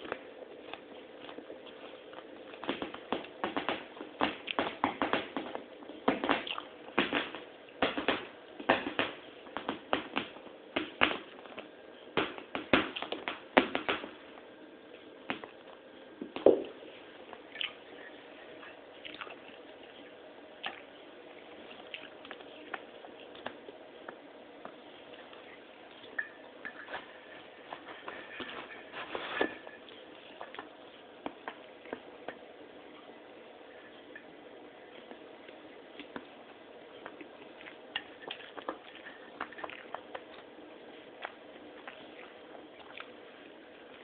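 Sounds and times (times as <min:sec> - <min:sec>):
pets eating from a dish: 0:16.8 - 0:34.3, 0:34.9 - 0:44.0.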